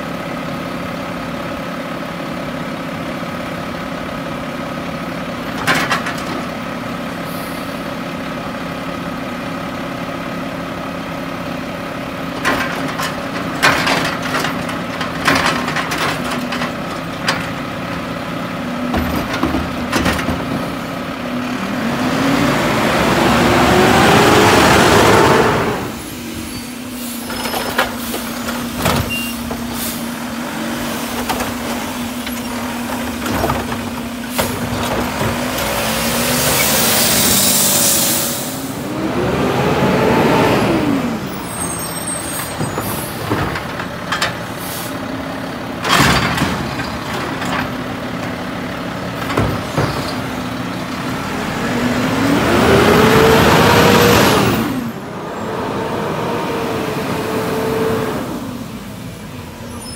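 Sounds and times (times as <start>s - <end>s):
truck engine drone: 0.0s - 59.9s
air brake hiss: 7.2s - 7.9s, 26.0s - 28.4s, 36.8s - 38.7s, 44.6s - 45.0s.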